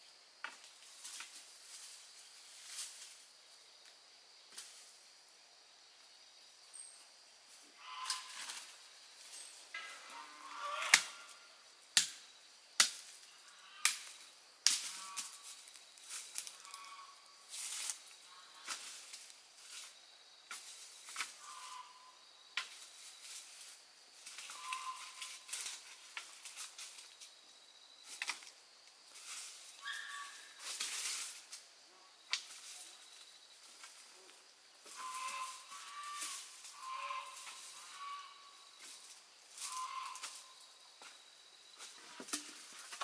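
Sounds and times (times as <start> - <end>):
rustling and crackling: 0.6 - 3.3, 14.7 - 21.6, 22.7 - 27.3, 28.0 - 29.8, 30.5 - 31.7, 32.3 - 38.0, 41.8 - 43.0.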